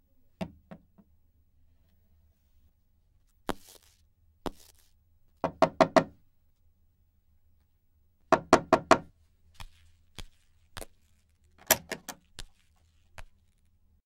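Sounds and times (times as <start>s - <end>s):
footsteps: 3.5s - 4.9s, 9.5s - 13.6s
knocks on wooden door: 5.4s - 6.2s, 8.4s - 9.1s
door handle and latch clicking: 11.6s - 12.2s.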